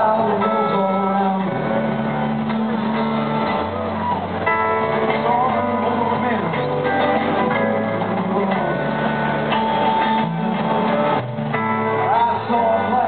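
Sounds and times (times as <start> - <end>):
bending electric guitar lead: 0.0 - 13.0
rock band playing live: 0.0 - 13.0.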